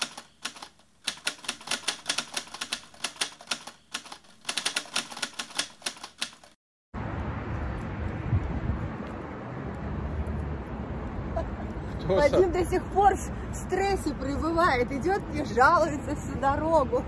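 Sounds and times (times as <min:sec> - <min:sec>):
typewriter keys clicking: 0:00.0 - 0:06.6.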